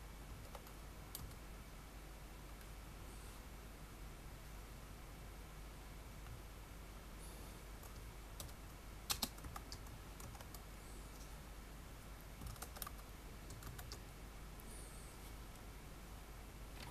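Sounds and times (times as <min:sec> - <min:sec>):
keyboard keystroke clicks: 0:07.8 - 0:10.6.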